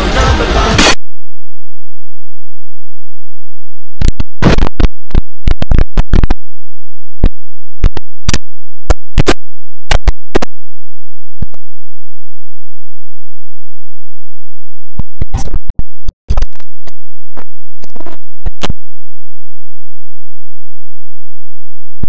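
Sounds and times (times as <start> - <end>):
distorted crackling clicks and pops: 0.1 - 22.0.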